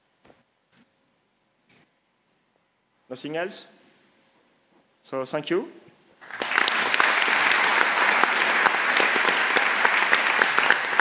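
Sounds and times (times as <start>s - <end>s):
audience applauding: 6.2s - 11.0s.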